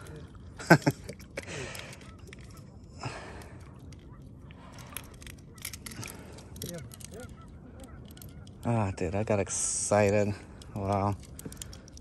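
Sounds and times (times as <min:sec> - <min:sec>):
person breathing heavily: 0:01.4 - 0:02.2, 0:02.9 - 0:03.9.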